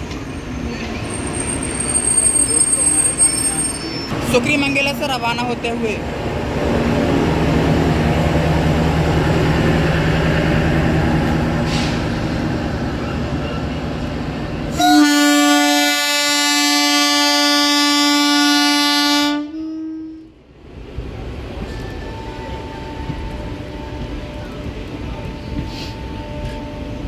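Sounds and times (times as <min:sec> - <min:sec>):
passenger train rumbling: 0:00.0 - 0:27.0
train horn blast: 0:14.7 - 0:20.4.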